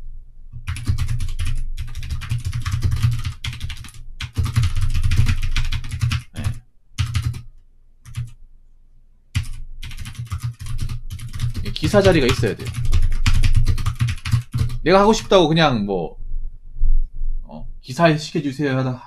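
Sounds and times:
fast typing on keyboard: 0.6s - 7.5s, 8.1s - 8.3s, 9.4s - 15.4s.

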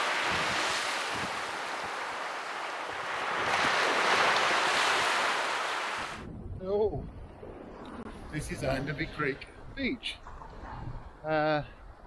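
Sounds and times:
waves breaking on beach: 0.0s - 6.2s
wind buffeting microphone: 0.0s - 12.0s.

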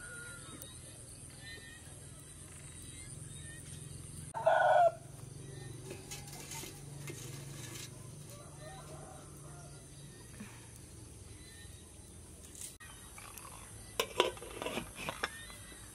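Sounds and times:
chicken crying: 4.4s - 5.1s.

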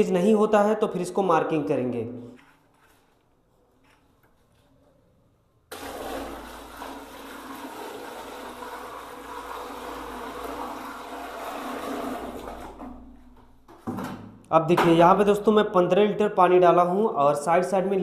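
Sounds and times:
water pouring into toilet bowl: 5.7s - 13.2s.

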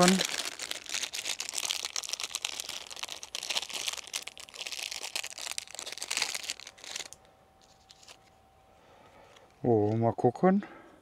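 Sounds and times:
packaging wrapper crinkling: 0.0s - 8.3s.

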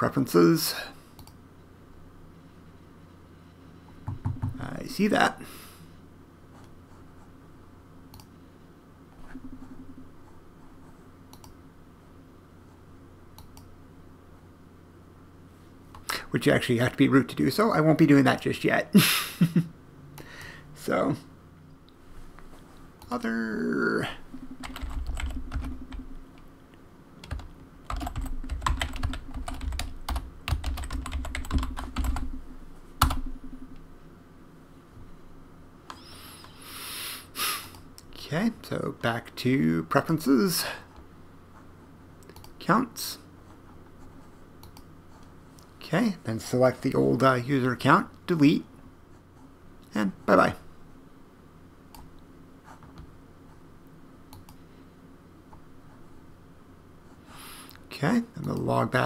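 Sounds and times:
low steady hum: 0.0s - 59.0s
computer mouse clicking: 1.2s - 1.4s, 11.3s - 11.6s, 42.2s - 42.6s, 44.6s - 44.9s, 54.3s - 54.6s
typing on computer keyboard: 24.6s - 26.1s, 27.2s - 32.4s.

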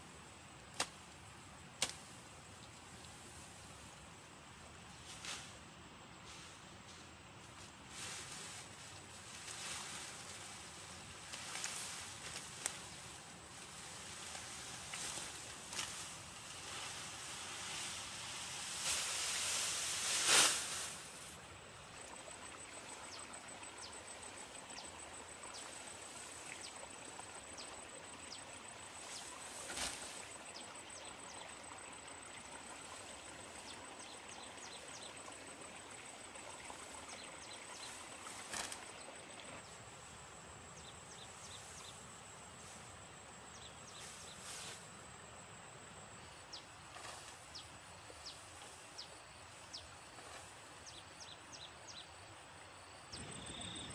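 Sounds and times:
cut grass rustling: 0.7s - 4.1s, 4.9s - 21.4s, 28.9s - 30.4s, 36.4s - 40.2s, 43.6s - 45.0s, 46.6s - 50.8s
high-pitched insect trill: 52.8s - 53.9s.

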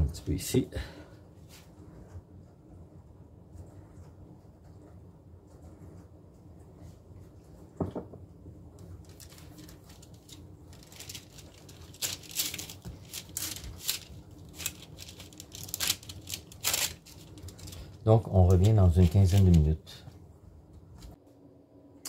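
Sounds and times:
knock: 7.8s - 8.2s.

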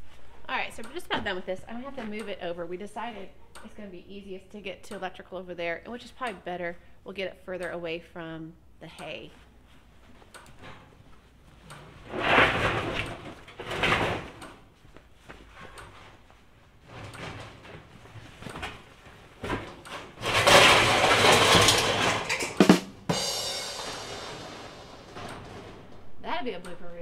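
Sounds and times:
metal tank scraping on floor: 12.0s - 14.4s, 20.0s - 26.2s.

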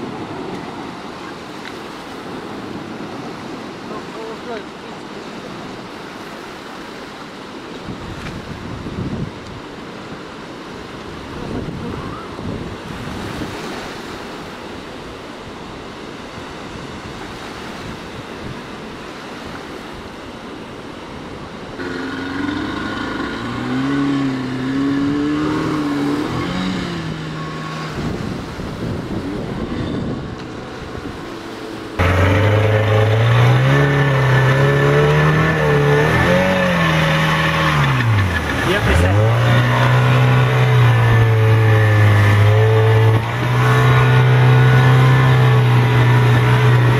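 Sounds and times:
surf: 0.0s - 46.9s
wind: 0.0s - 46.9s
outboard motor running: 21.7s - 46.9s.

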